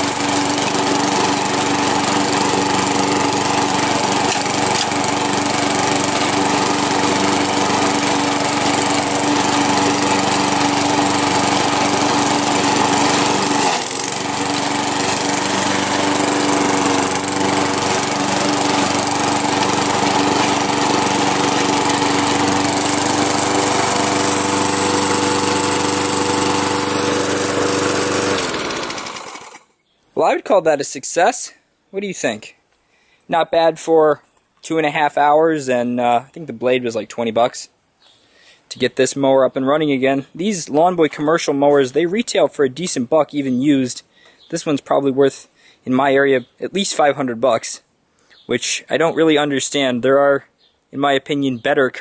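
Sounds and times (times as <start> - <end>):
lawn mower engine running: 0.0 - 29.7.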